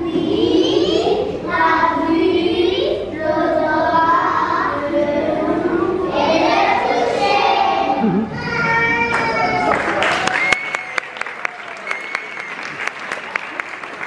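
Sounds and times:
young children singing: 0:00.0 - 0:09.8.

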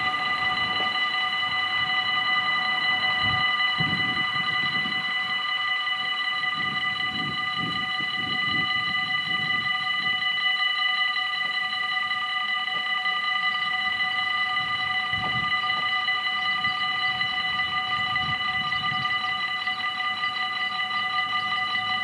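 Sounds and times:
level crossing warning bell: 0:00.0 - 0:22.0.

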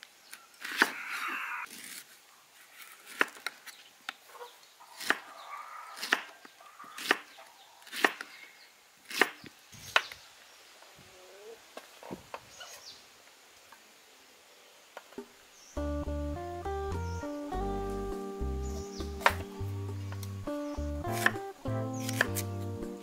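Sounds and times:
knife chopping on wooden board: 0:19.1 - 0:19.5, 0:21.1 - 0:21.4, 0:22.0 - 0:22.5.

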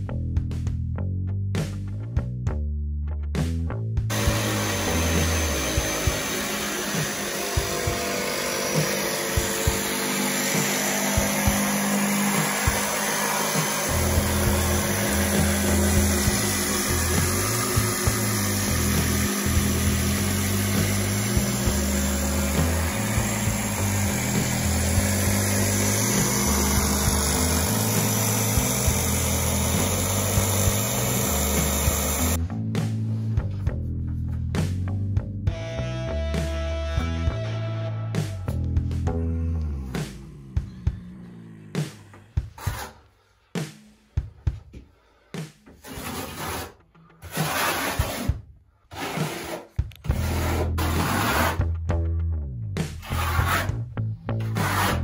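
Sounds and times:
background music: 0:00.0 - 0:44.8
jigsaw cutting: 0:04.1 - 0:32.4, 0:41.4 - 0:43.0, 0:45.8 - 0:51.6, 0:54.4 - 0:55.0.

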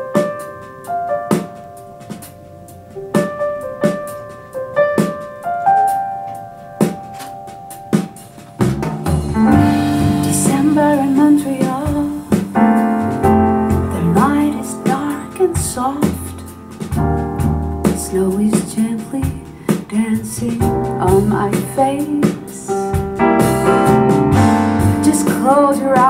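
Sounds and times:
piano: 0:00.0 - 0:26.0
person singing: 0:09.6 - 0:12.6, 0:13.7 - 0:16.6, 0:18.0 - 0:23.0, 0:24.8 - 0:26.0.

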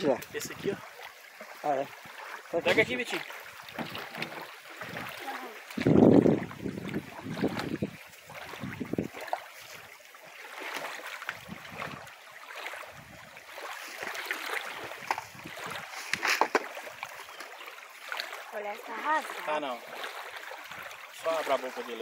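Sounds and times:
small waves lapping: 0:00.0 - 0:22.0
wind buffeting microphone: 0:04.8 - 0:09.2, 0:11.4 - 0:12.1, 0:14.8 - 0:16.2.

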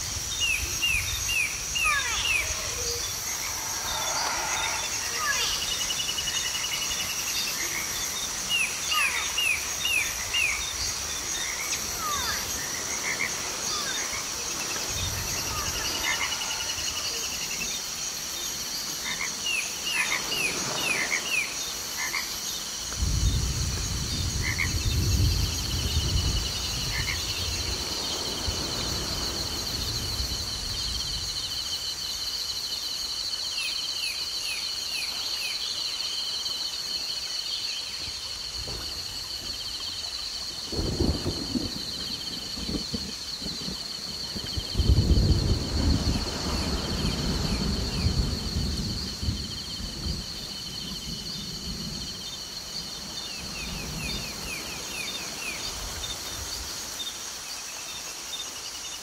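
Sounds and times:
frogs chirping: 0:00.0 - 0:59.0
high insect drone: 0:00.0 - 0:59.0
low rumble: 0:02.5 - 0:06.4.

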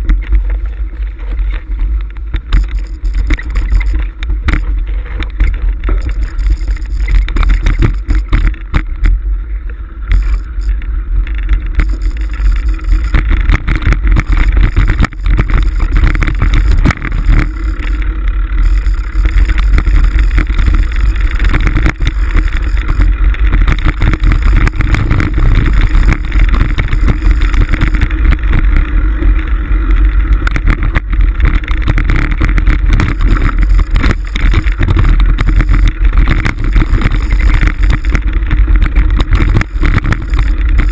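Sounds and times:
bike knocks and rattles: 0:00.0 - 0:40.9
wind buffeting microphone: 0:00.0 - 0:40.9.

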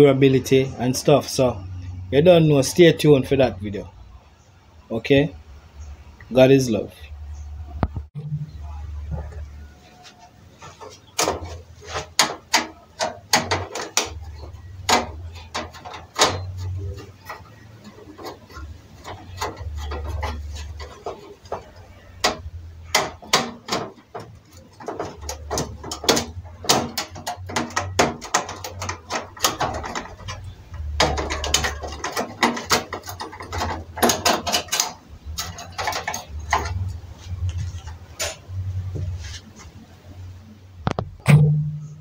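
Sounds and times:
screwdriver clicking and scraping metal: 0:10.8 - 0:38.4.

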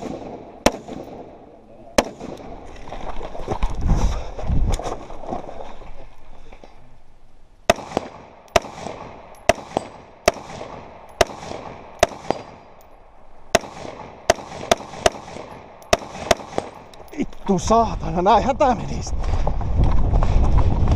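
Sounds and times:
rifle shots with echo: 0:00.0 - 0:02.6, 0:07.7 - 0:12.8, 0:13.4 - 0:17.0.

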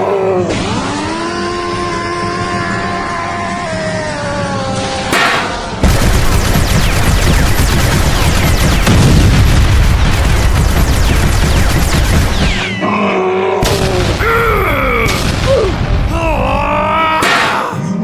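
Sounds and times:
cartoon explosion blasts: 0:05.1 - 0:12.9, 0:13.6 - 0:17.6.

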